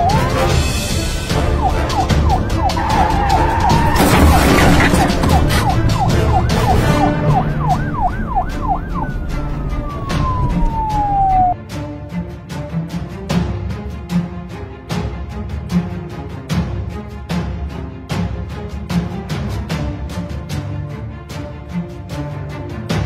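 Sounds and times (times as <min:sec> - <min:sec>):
police siren: 0:00.0 - 0:11.6.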